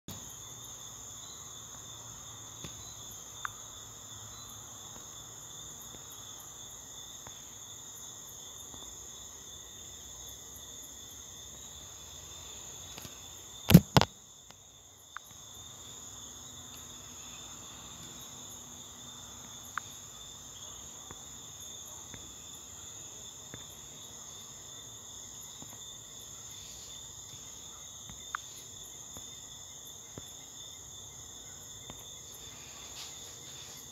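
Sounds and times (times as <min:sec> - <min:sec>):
faint ticks: 0:19.4 - 0:20.0, 0:28.1 - 0:29.3.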